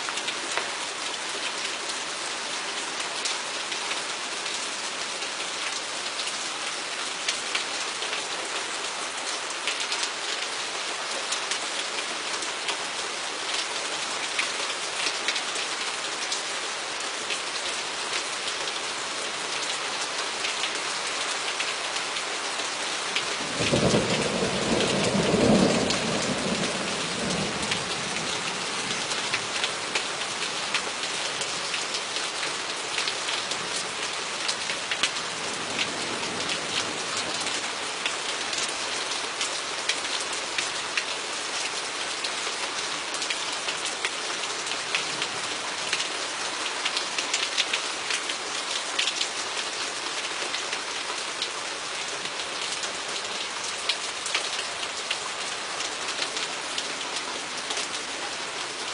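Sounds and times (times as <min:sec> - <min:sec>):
steady rain: 0:00.0 - 0:58.9
raindrops ticking close by: 0:17.0 - 0:58.9.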